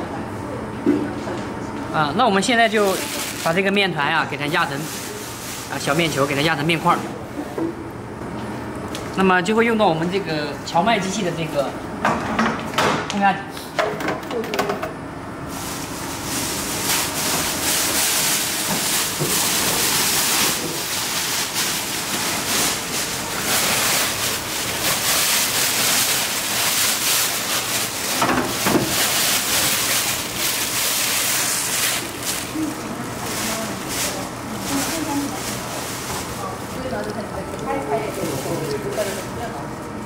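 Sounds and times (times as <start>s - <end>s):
plastic bag rustling and crinkling: 2.6s - 3.8s, 4.4s - 6.9s, 15.5s - 39.6s.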